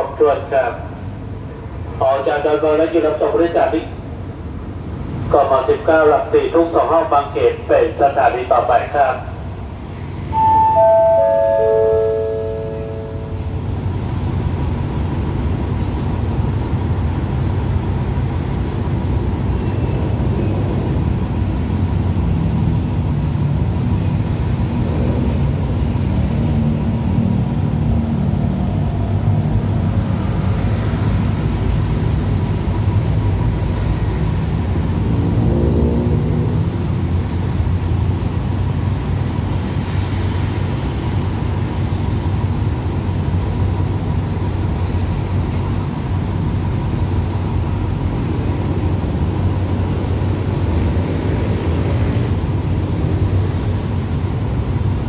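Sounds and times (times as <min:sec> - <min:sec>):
diesel train engine rumble: 0:00.0 - 0:55.0
rising engine note: 0:10.3 - 0:13.6.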